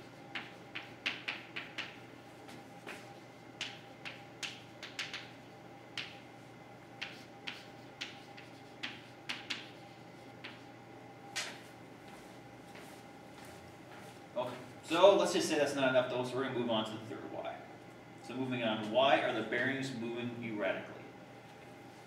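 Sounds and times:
chalk tapping on a blackboard: 0.0 - 2.0, 3.6 - 5.3, 5.9 - 6.2, 7.0 - 10.7.

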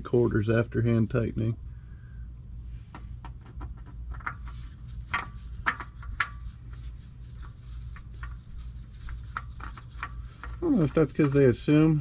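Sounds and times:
steady low hum: 0.0 - 12.0
oil filter scraping and clicking: 3.0 - 12.0.

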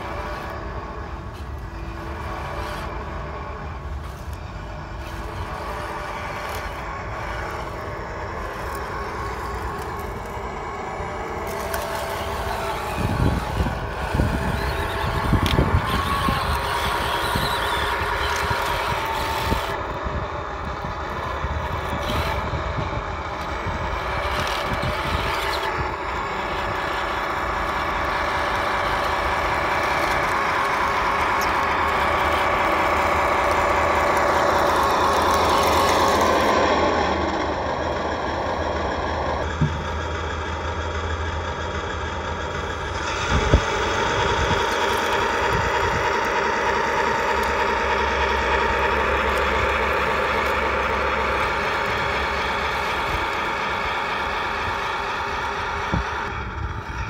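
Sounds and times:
rough noise: 0.0 - 40.3
toy tank engine running: 0.0 - 57.0.

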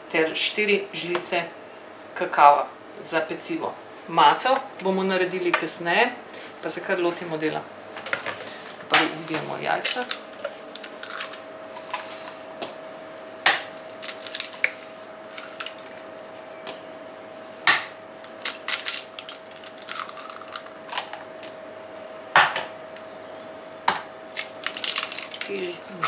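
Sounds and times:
faint steady hum: 0.0 - 26.0
eggs cracking: 9.8 - 12.4, 13.5 - 16.1, 17.7 - 21.5, 23.9 - 26.0.

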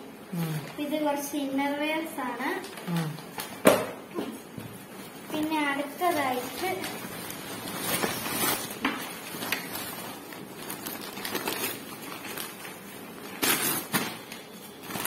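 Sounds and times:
plastic package crinkling: 5.0 - 15.0.

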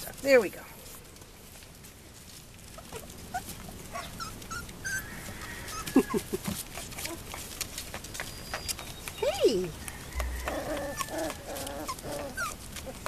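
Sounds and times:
paws scuffling on wooden boards: 0.0 - 13.0
puppies whimpering: 2.7 - 13.0
puppy high squeaks: 2.8 - 7.4, 8.2 - 9.5, 10.2 - 13.0.

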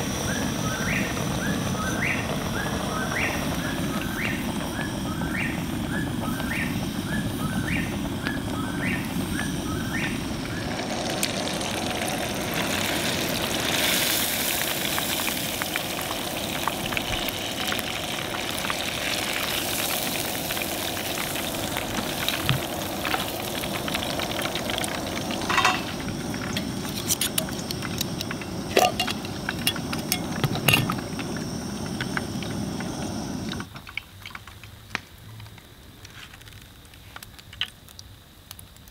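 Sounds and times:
fish sizzling in hot oil: 6.4 - 34.7.

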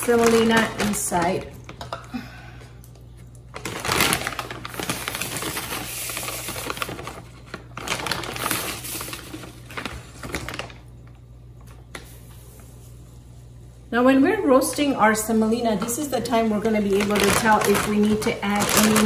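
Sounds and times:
plastic bag rustling and crackling: 0.0 - 2.0, 3.5 - 10.9, 16.2 - 19.0.

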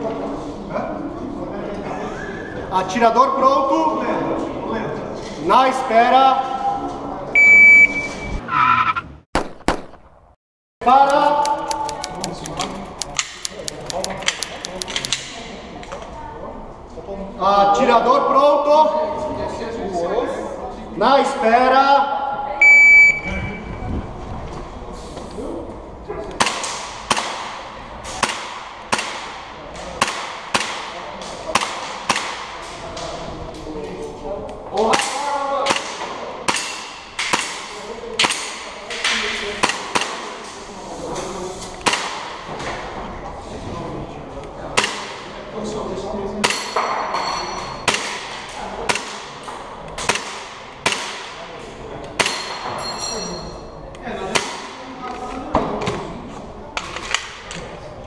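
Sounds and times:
airsoft pistol shots: 9.4 - 10.2.

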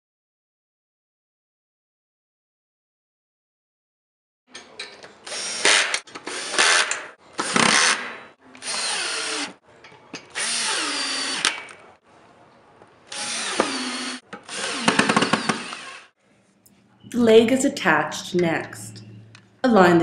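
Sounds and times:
power drill bursts: 5.2 - 9.6, 10.3 - 11.6, 13.1 - 16.1.

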